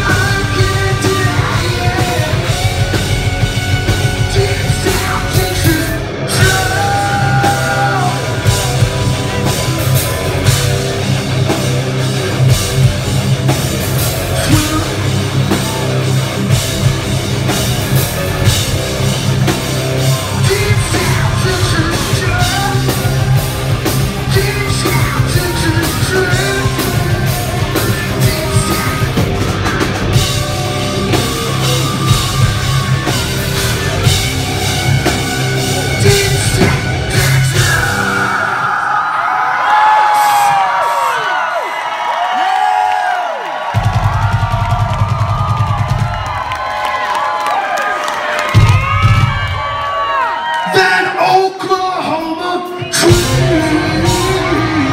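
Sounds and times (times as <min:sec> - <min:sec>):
person singing lead vocals: 0:00.0 - 0:10.8, 0:14.2 - 0:16.5, 0:19.9 - 0:39.0, 0:50.7 - 0:54.9
drum kit: 0:00.0 - 0:38.6, 0:43.6 - 0:47.3, 0:48.3 - 0:50.0, 0:52.8 - 0:54.9
bass guitar: 0:00.0 - 0:38.7, 0:52.8 - 0:54.9
distorted electric guitars: 0:00.0 - 0:39.0, 0:52.8 - 0:54.9.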